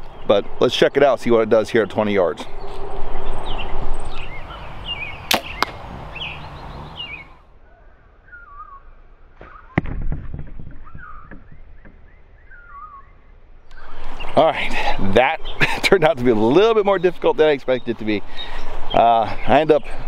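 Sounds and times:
birds chirping: 0:00.0 - 0:09.8, 0:10.6 - 0:20.0
arrow hitting gel thud: 0:05.3 - 0:05.8
bow shot sharp cracks: 0:05.3 - 0:05.9, 0:09.4 - 0:12.0.

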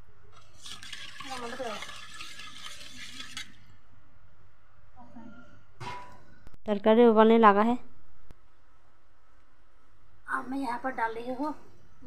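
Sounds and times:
spatula scraping and sloshing curry: 0:00.3 - 0:03.8.

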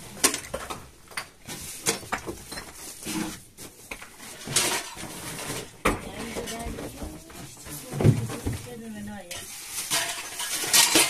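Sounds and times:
metal pots knocking and clinking: 0:04.3 - 0:08.7, 0:09.3 - 0:11.0.

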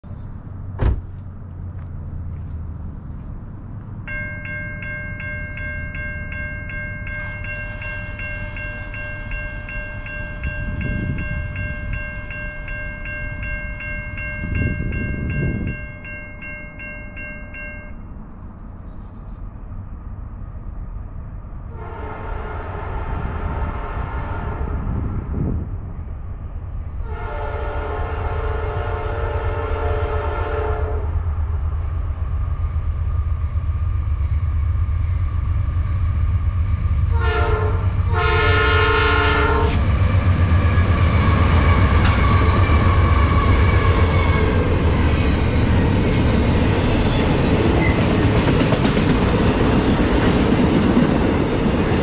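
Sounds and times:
railroad crossing bell ringing: 0:04.0 - 0:18.3, 0:37.0 - 0:39.7, 0:40.3 - 0:52.0
train air horn chord: 0:21.7 - 0:25.0, 0:27.0 - 0:31.1, 0:37.1 - 0:39.9.

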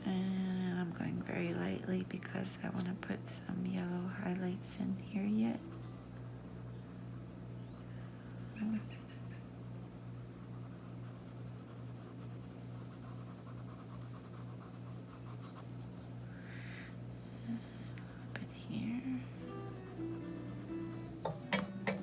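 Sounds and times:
pencil scratching on paper: 0:00.0 - 0:06.6, 0:08.0 - 0:16.1
steady low hum: 0:00.0 - 0:22.0.

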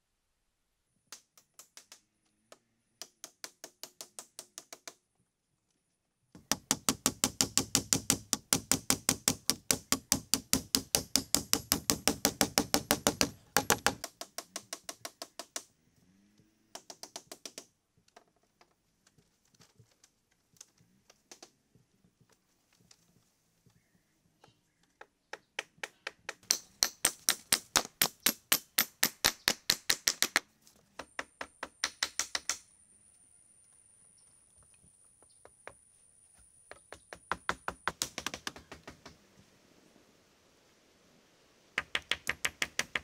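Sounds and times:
hand tool striking wood: 0:06.4 - 0:15.7, 0:25.3 - 0:32.6, 0:36.7 - 0:39.2, 0:41.8 - 0:43.0.

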